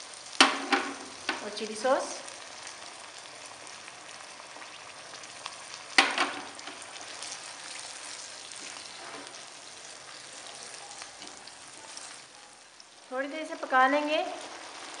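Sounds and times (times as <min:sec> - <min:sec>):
food sizzling in hot oil: 0:00.0 - 0:15.0
spatula stirring in pan: 0:02.4 - 0:13.0.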